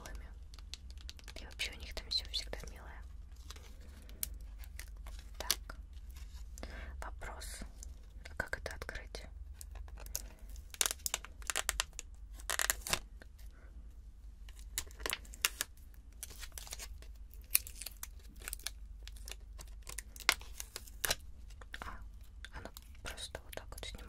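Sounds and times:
packaging crinkling: 0:00.1 - 0:06.7, 0:09.6 - 0:13.2, 0:14.5 - 0:24.0
packaging tearing: 0:09.6 - 0:13.1, 0:14.6 - 0:21.2.

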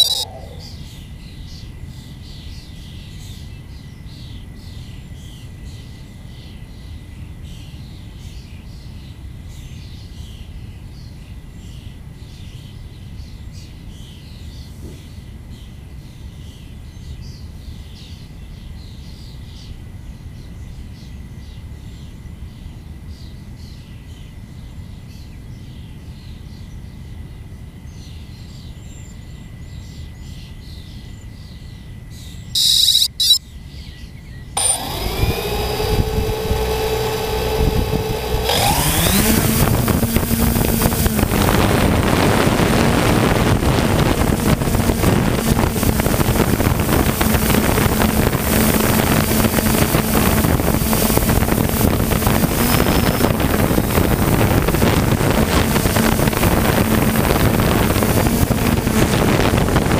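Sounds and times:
thin steady high tone: 0:00.0 - 0:00.8, 0:32.6 - 0:33.4
birds chirping: 0:00.0 - 0:01.0, 0:32.6 - 0:33.4, 0:43.4 - 0:59.6.

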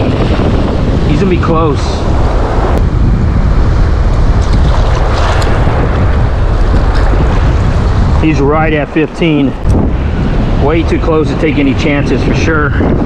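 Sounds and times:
rough surf washing: 0:00.0 - 0:13.0
wind rumbling on microphone: 0:00.0 - 0:13.0.

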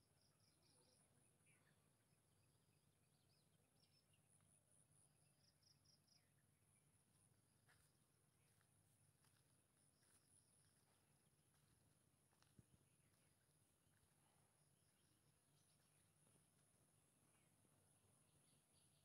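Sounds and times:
faint insects chirping: 0:00.0 - 0:19.0.

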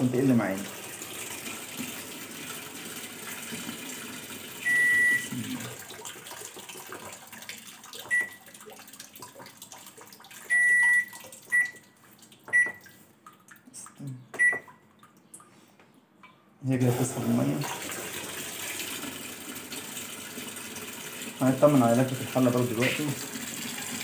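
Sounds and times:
water filling washing machine: 0:00.0 - 0:14.8, 0:16.7 - 0:24.0
washing machine button beeps: 0:04.6 - 0:05.3, 0:08.1 - 0:08.5, 0:10.5 - 0:11.8, 0:12.5 - 0:12.9, 0:14.4 - 0:14.8.

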